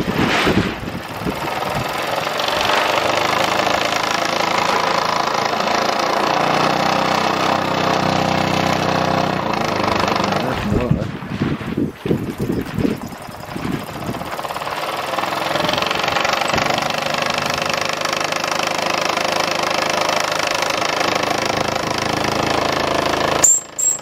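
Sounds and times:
toy steam engine chuffing rattle: 13.2 - 24.0
short sharp high sound: 23.4 - 24.0.

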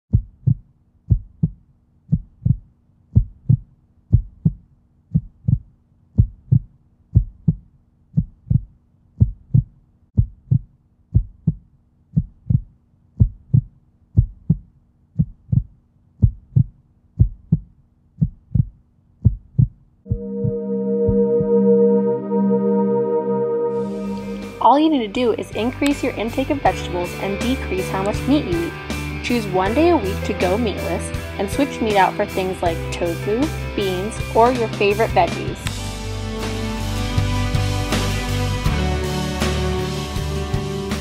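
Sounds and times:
heartbeat thumps: 0.1 - 21.6.

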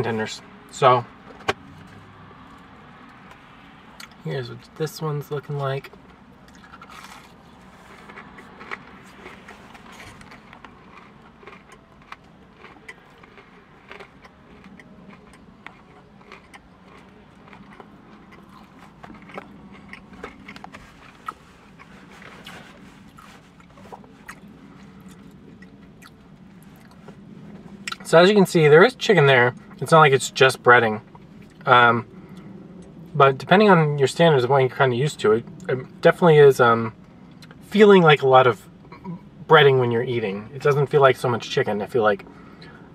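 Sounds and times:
low steady hum: 0.0 - 42.9
chewing crispy food: 5.2 - 28.1.

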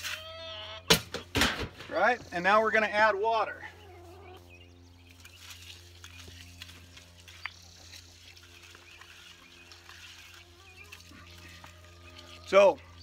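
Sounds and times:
hose water running into bucket: 5.2 - 13.0.

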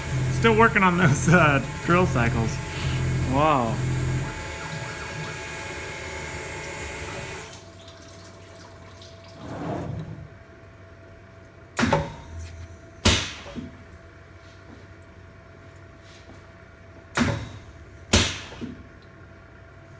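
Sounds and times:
milling machine cutting metal: 0.0 - 7.5
hissing coolant mist: 0.0 - 7.6.

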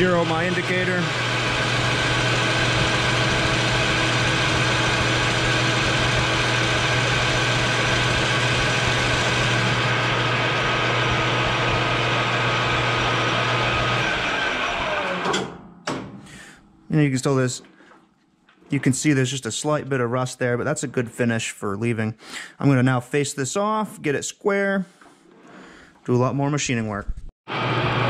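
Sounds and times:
lathe spindle whining: 0.0 - 15.5.

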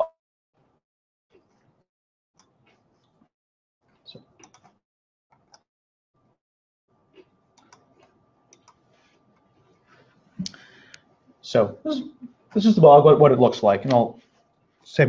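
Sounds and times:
faint clicks and taps: 7.1 - 9.8.

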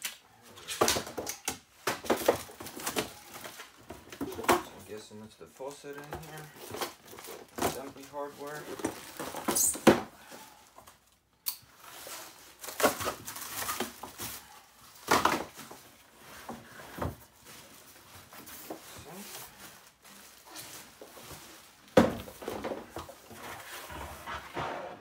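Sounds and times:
cardboard and parts rustling and knocking: 0.4 - 5.0, 5.8 - 25.0
plastic wrap crinkling: 5.6 - 9.8, 10.5 - 23.8.

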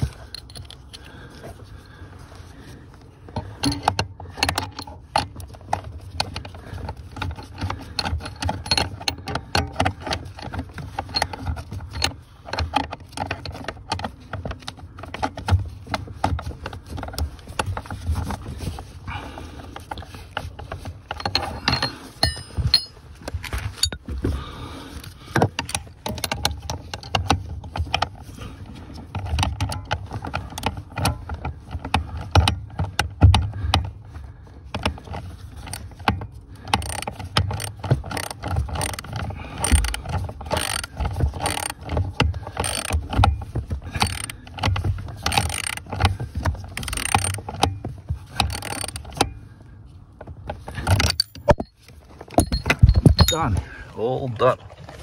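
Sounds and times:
metal and plastic parts rattling: 0.0 - 1.6, 3.2 - 55.0
ratchet wrench clicking: 3.6 - 5.3, 36.7 - 41.9, 42.5 - 43.0, 43.9 - 46.0, 46.8 - 47.7, 48.3 - 49.2.

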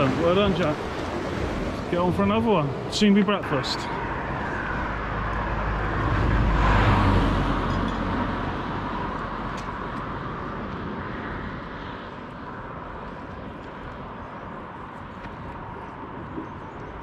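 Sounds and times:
road vehicle passing by: 0.0 - 13.3.

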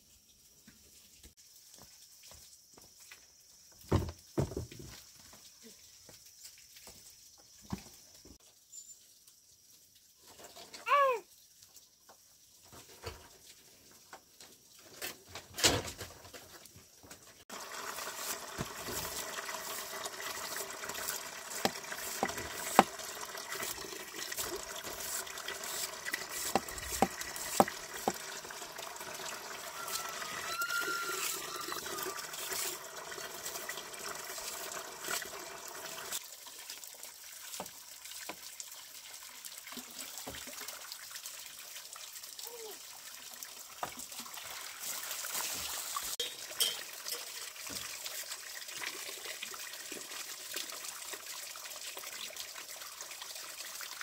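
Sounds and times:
water trickling: 17.3 - 54.0.

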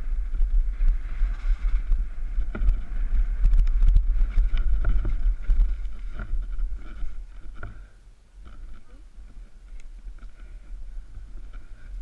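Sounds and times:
wind buffeting microphone: 0.0 - 12.0
bike knocks and rattles: 0.3 - 8.9.

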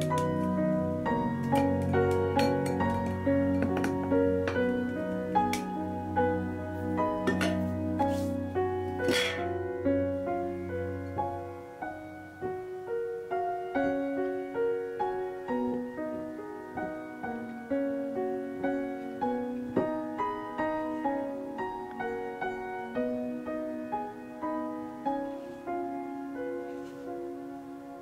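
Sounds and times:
gentle piano music: 0.0 - 28.0.

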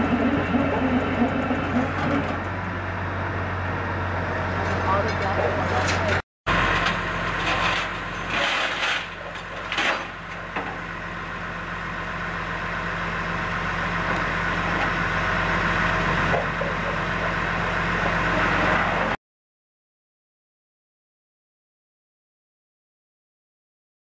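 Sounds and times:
truck engine idling: 0.0 - 8.4, 9.0 - 19.1.

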